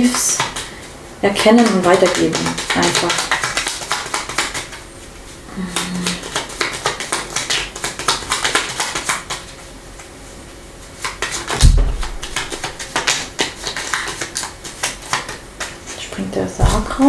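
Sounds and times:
cards being shuffled: 0.3s - 4.8s, 5.7s - 9.6s, 11.0s - 16.9s
low thump: 11.6s - 12.4s.

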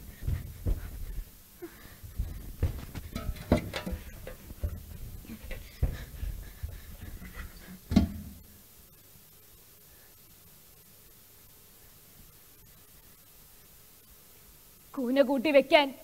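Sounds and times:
bare footsteps on boards: 0.0s - 8.3s
faint metallic ringing: 3.0s - 8.4s.

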